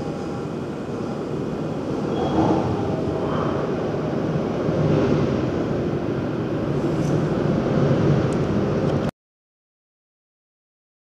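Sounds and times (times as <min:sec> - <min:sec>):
low outdoor rumble: 0:00.0 - 0:09.1.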